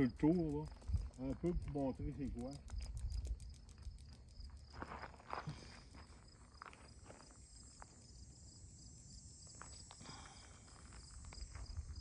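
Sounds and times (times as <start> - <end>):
insect chirping: 0.0 - 12.0
footsteps on gravel: 4.6 - 7.8.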